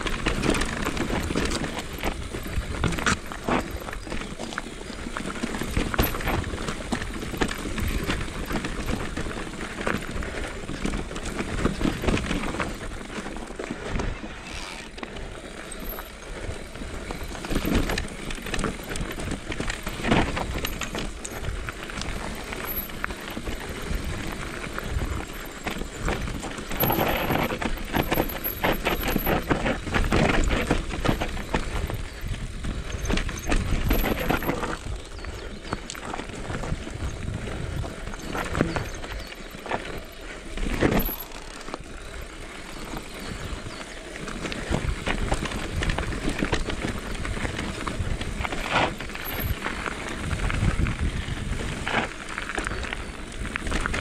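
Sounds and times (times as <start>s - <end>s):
bike rattling over bumps: 0.0s - 54.0s
tyres crunching over stones: 0.0s - 54.0s
wind rumble on microphone: 15.8s - 54.0s.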